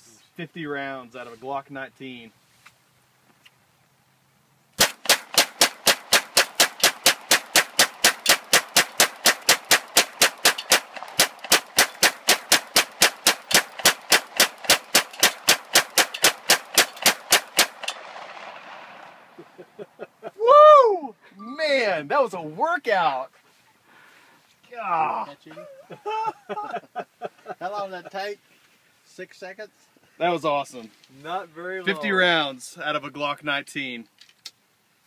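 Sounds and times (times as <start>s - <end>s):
pistol fired rapidly: 4.8s - 18.8s.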